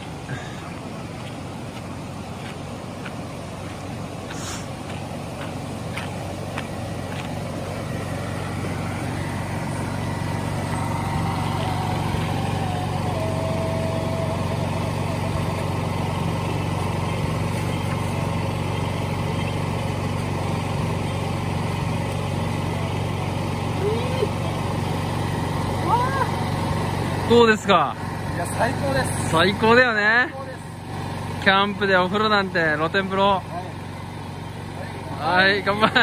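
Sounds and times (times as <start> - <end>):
motor humming: 5.7 - 28.0.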